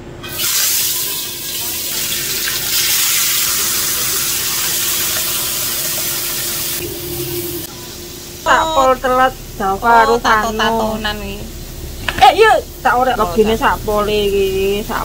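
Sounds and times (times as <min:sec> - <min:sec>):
fish sizzling in oil: 0:00.2 - 0:06.8.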